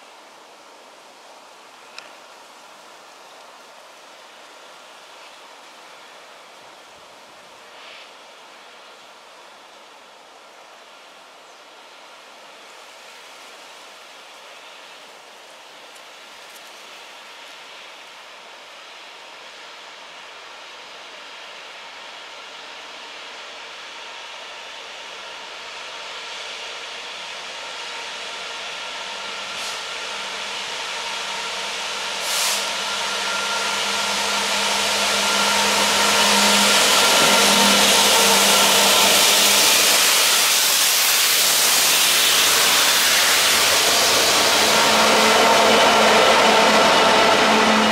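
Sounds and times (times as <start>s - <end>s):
diesel locomotive passing: 11.9s - 47.9s.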